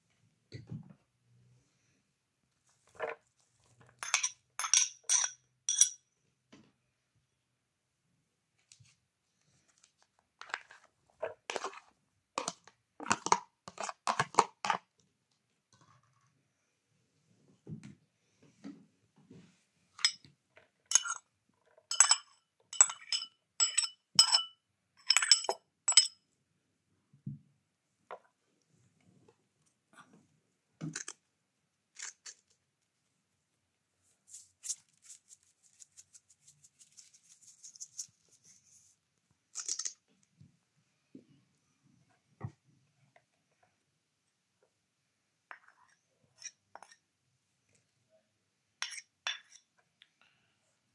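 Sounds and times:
metal spoon clinking against bowls: 0:04.0 - 0:06.1, 0:20.9 - 0:21.3, 0:21.9 - 0:26.2, 0:48.8 - 0:49.7.

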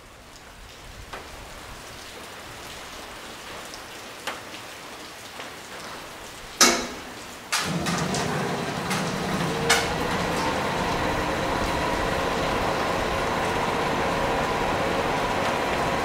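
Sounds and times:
loud ringing metal clank: 0:06.6 - 0:07.8.

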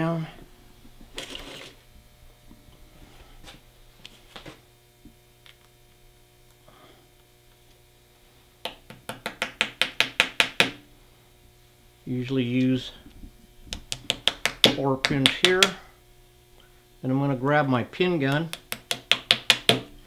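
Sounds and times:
small hammer tapping a pin: 0:08.6 - 0:10.8, 0:18.5 - 0:19.9.

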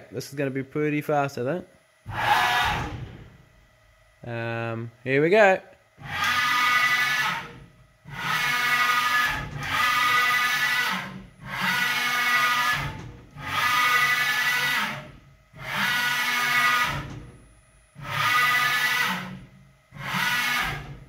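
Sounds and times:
machine axis whining rush: 0:02.1 - 0:03.5, 0:06.0 - 0:17.4, 0:18.0 - 0:21.0.

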